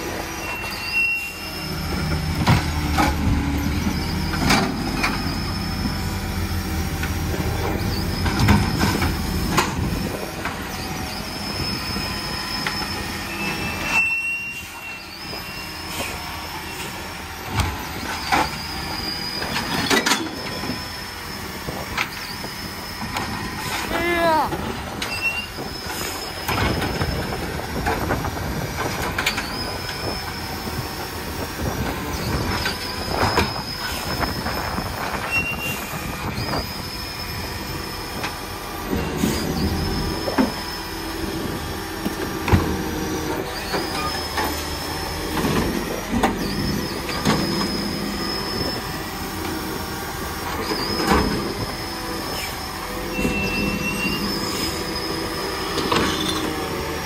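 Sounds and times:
high squeal with rising glide: 0.0 - 2.3, 10.6 - 24.4.

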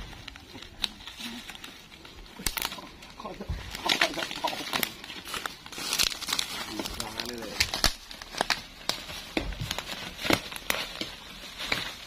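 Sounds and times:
twigs snapping: 0.3 - 12.0
footsteps crunching on dry leaves: 3.6 - 12.0.

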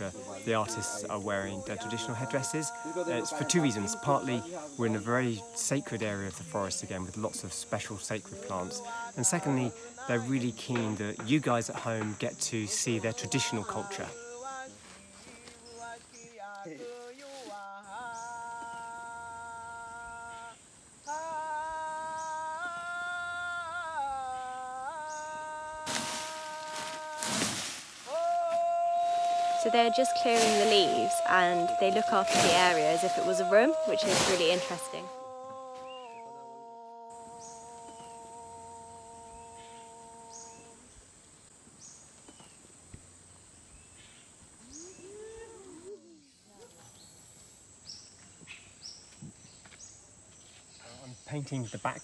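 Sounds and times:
person humming a slow tune: 0.0 - 5.6, 13.0 - 41.0, 44.6 - 46.6
high insect buzz: 0.0 - 52.0
rising and falling calls: 17.9 - 41.0, 44.6 - 46.6
rake scraping dry leaves: 25.8 - 28.2, 29.0 - 35.2.

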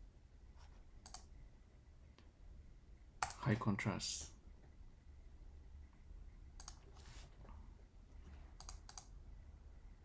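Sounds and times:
low steady hum: 0.0 - 10.0
computer mouse clicks: 1.0 - 1.3, 3.2 - 3.4, 6.6 - 7.0, 8.5 - 9.2.

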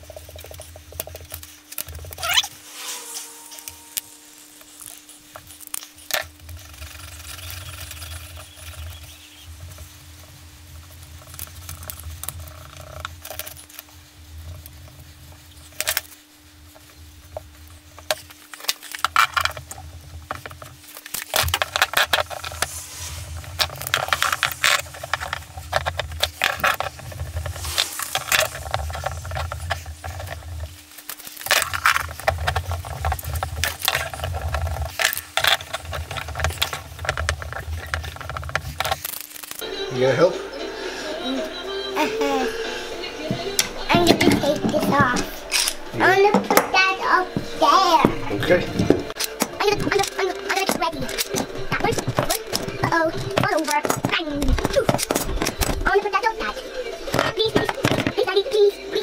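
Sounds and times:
epoxy being squeezed and scraped: 0.0 - 39.6, 48.1 - 58.4
low hum: 2.2 - 30.8.

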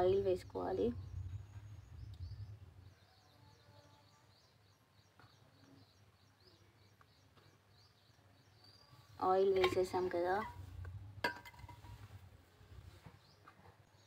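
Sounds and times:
low rumble: 0.0 - 3.2, 10.0 - 12.9
faint birdsong chirps: 0.0 - 14.0.

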